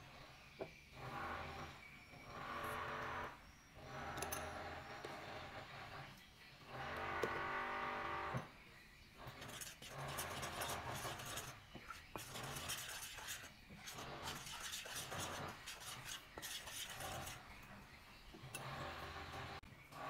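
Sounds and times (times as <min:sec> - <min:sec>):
spoon scraping glass bowl: 0:09.3 - 0:17.6.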